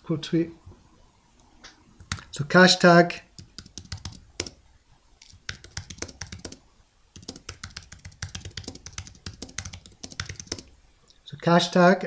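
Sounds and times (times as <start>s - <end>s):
typing on keyboard: 2.0s - 2.4s, 3.4s - 4.6s, 5.2s - 6.6s, 7.2s - 10.8s.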